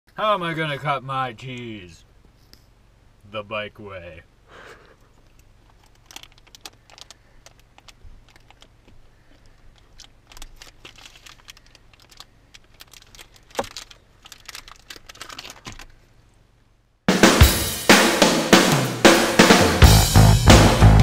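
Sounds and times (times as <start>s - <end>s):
plastic crinkling: 5.2s - 16.2s.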